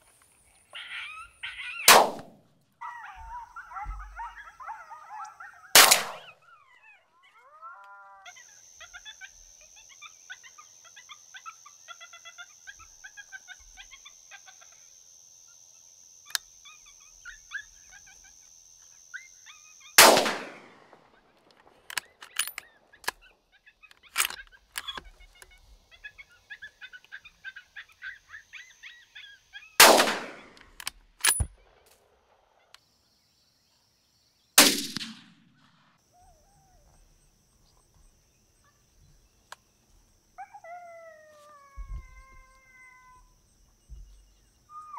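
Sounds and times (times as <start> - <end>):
high chirping calls: 0.6 - 2.0
echoing gunshots: 1.9 - 2.4, 5.8 - 6.3, 20.0 - 21.1, 29.8 - 30.6, 34.6 - 35.6.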